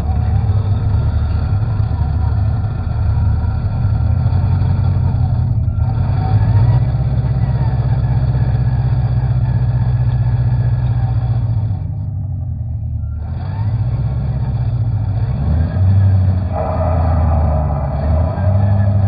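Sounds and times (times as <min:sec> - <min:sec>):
truck engine rumble: 0:00.0 - 0:19.0.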